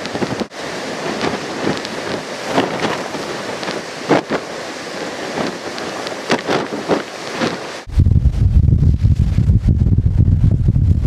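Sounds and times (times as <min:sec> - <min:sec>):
heavy surf breaking on rocks: 0:00.0 - 0:08.0
wind buffeting microphone: 0:00.0 - 0:11.0.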